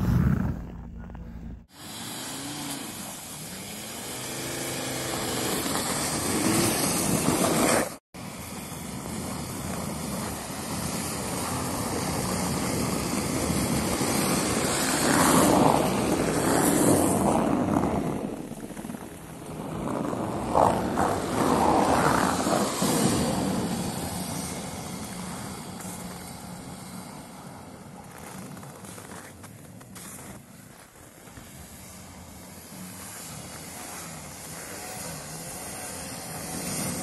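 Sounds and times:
rushing noise: 0.0 - 28.6
car engine: 0.0 - 37.0.

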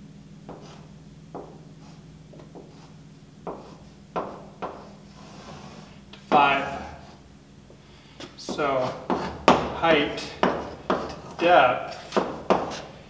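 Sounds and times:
chalk tapping on chalkboard: 0.5 - 7.2, 8.2 - 12.9.

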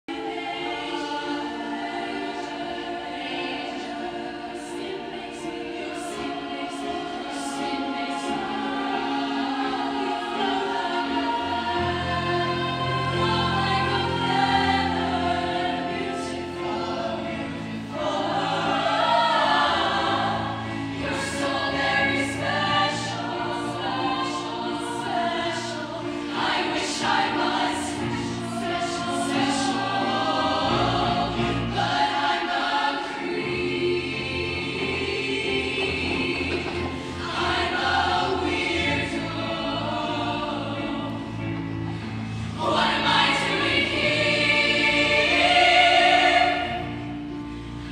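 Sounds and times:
choir singing a ballad: 0.1 - 47.9.

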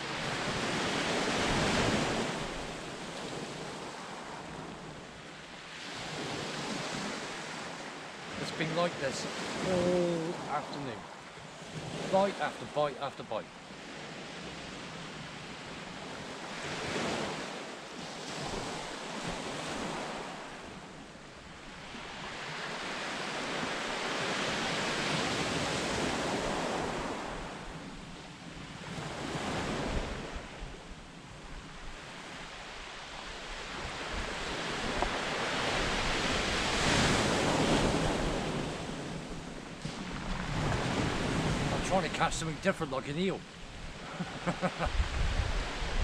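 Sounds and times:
sea waves breaking on beach: 0.0 - 46.0
wind buffeting microphone: 33.6 - 41.8, 44.8 - 46.0.

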